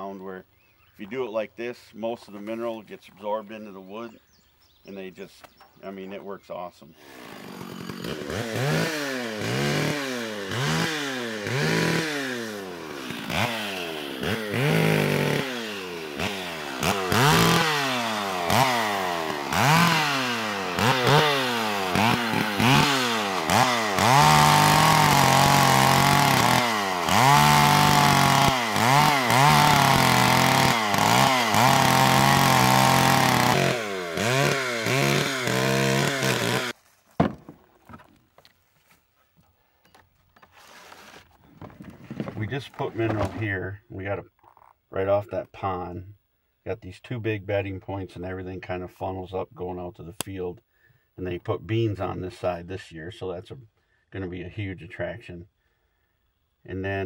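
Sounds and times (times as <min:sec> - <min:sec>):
chainsaw revving into log: 0:06.9 - 0:36.8.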